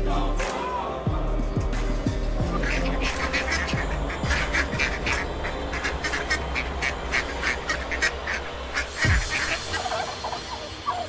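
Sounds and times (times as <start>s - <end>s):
ducks quacking: 2.4s - 11.0s.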